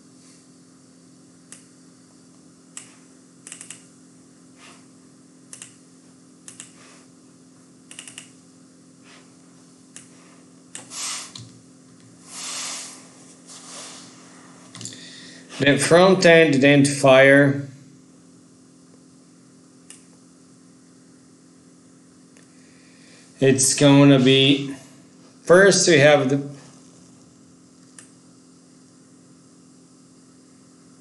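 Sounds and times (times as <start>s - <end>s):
low electrical hum: 0.0s - 31.0s
keyboard and mouse clicking: 2.8s - 3.8s, 5.5s - 5.8s, 6.5s - 6.8s, 7.9s - 8.3s
short hissing rushes: 10.1s - 11.5s, 12.2s - 15.7s.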